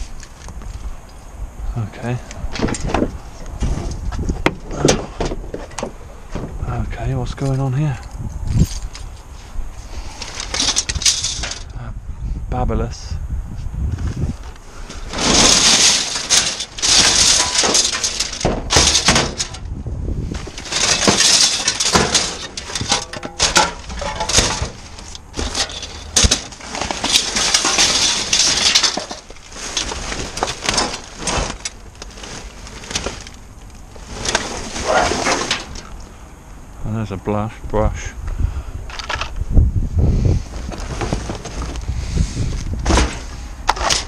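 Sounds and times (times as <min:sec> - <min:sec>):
items clattering in metal bin: 0:10.3 - 0:11.7, 0:15.0 - 0:19.7, 0:20.3 - 0:33.4, 0:34.0 - 0:36.0, 0:42.8 - 0:44.0
plastic bags crinkling: 0:15.0 - 0:19.6, 0:20.4 - 0:35.0.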